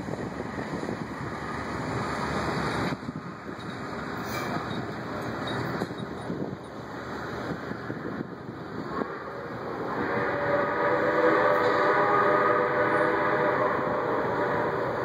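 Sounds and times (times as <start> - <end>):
train rumble: 0.0 - 15.0
steam whistle blast: 9.0 - 15.0.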